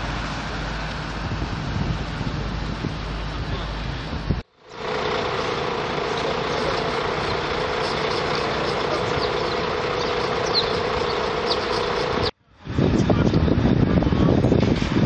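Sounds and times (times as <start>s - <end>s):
vehicle engine idling: 0.0s - 12.4s
street noise: 0.0s - 15.0s
faint high chirps: 6.1s - 12.3s.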